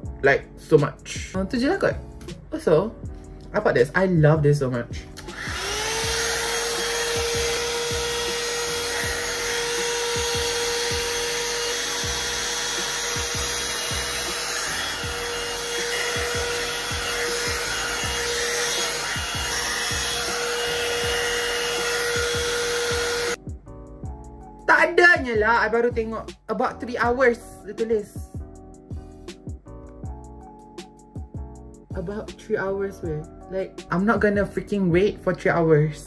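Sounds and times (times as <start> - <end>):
hot air brush motor whine: 5.2 - 23.4.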